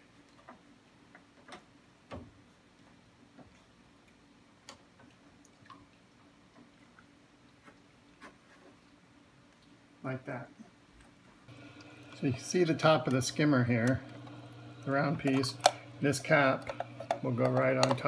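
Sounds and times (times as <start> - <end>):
low steady hum: 8.8 - 18.0
faint clicks and knocks: 13.8 - 18.0.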